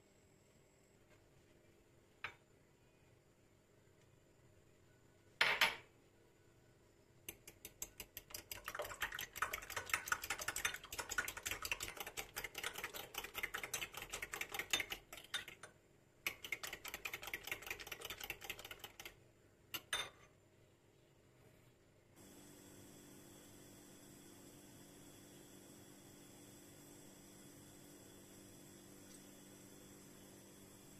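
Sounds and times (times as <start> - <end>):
fork whisking eggs in bowl: 7.3 - 19.2.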